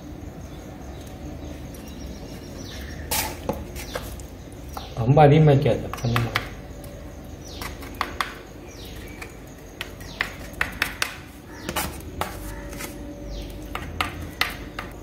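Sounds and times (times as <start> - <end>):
small tool scraping and tapping: 9.0 - 13.0.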